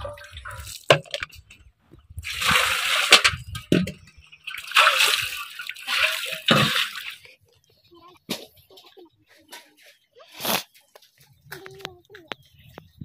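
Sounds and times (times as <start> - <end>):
metal vessels knocking: 0.0 - 7.2
water splashing: 0.0 - 7.5.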